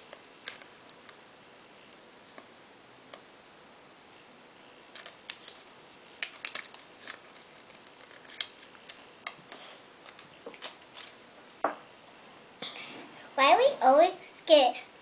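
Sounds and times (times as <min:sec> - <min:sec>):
plastic toy packaging clicks: 0:05.0 - 0:05.6, 0:06.2 - 0:09.4.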